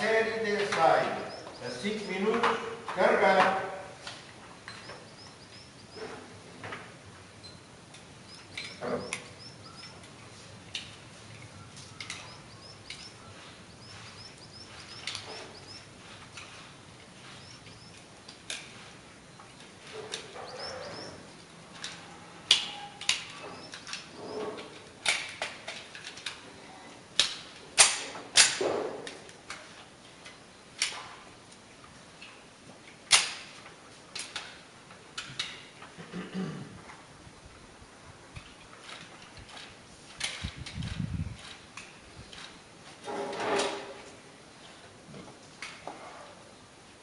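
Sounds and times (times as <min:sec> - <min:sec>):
small birds chirping: 0:00.0 - 0:02.8, 0:04.6 - 0:06.3, 0:07.4 - 0:21.5, 0:23.0 - 0:24.8.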